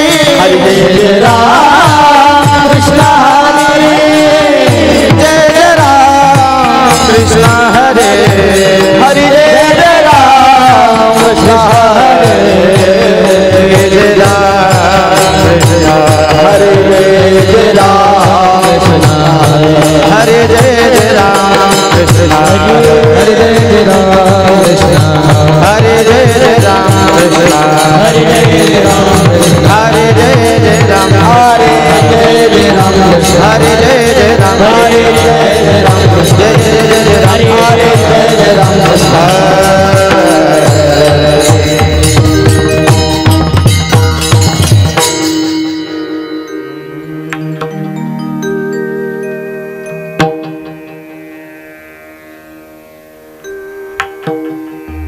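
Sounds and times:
person singing devotional melody: 0:00.0 - 0:55.0
drum beat: 0:10.6 - 0:45.4.

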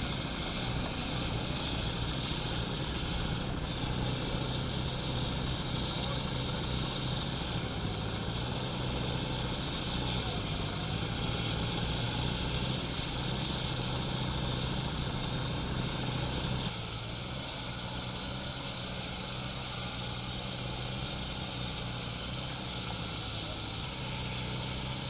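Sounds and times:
saw engine hum: 0:00.0 - 0:25.0.

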